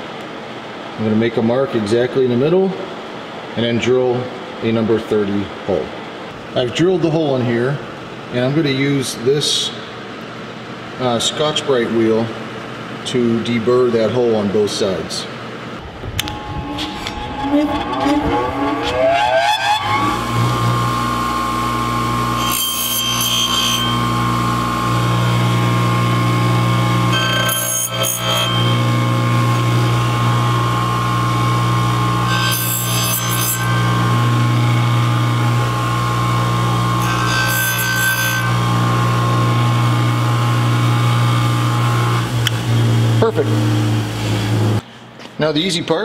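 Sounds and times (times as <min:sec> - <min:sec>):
bench grinder humming: 0:15.8 - 0:44.8
metal scratching against grinding wheel: 0:16.2 - 0:42.8.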